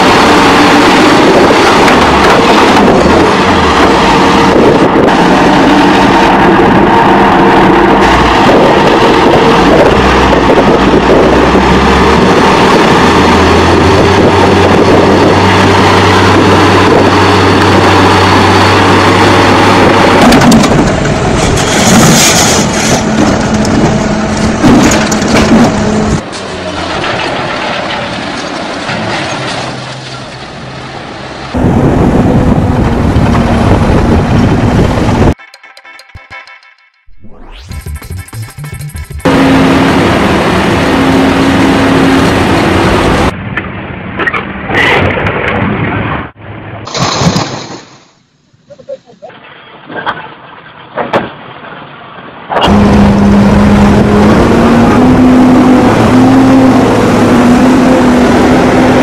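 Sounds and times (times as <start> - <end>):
loud vehicle engine: 0.0 - 35.4, 37.1 - 46.8, 52.5 - 59.0.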